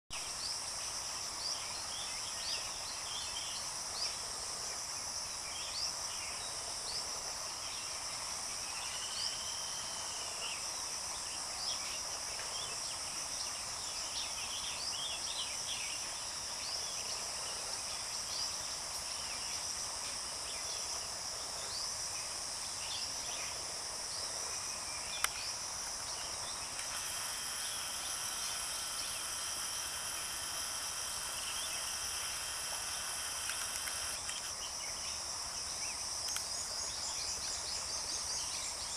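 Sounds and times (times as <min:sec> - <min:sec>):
insects droning: 0:00.1 - 0:38.9
sharp click: 0:31.8 - 0:34.5, 0:36.2 - 0:36.5.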